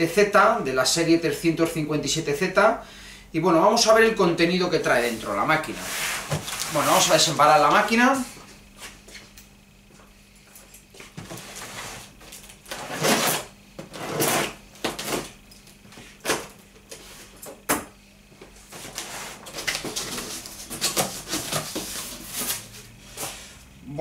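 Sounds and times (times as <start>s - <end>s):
cardboard flaps rustling: 5.2s - 7.4s
tape being cut: 12.6s - 15.3s.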